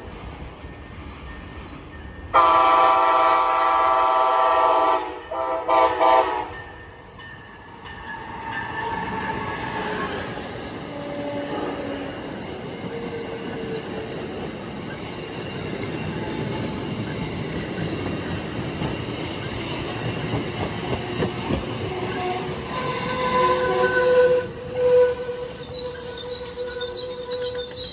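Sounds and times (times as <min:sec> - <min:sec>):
train wheels rumbling on track: 0:00.0 - 0:27.9
high metallic wheel squeal: 0:06.8 - 0:14.2, 0:19.3 - 0:27.9.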